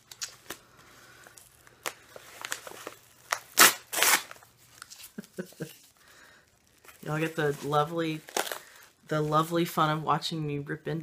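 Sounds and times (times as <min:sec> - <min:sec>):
package ripping: 0:00.0 - 0:07.3, 0:08.1 - 0:08.9
packaging crinkling: 0:00.0 - 0:09.0.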